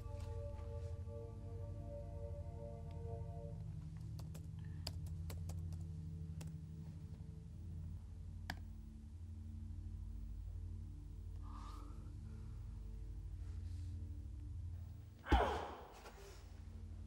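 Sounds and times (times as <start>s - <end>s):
low background music drone: 0.0s - 17.0s
laptop keys tapping: 4.0s - 6.6s.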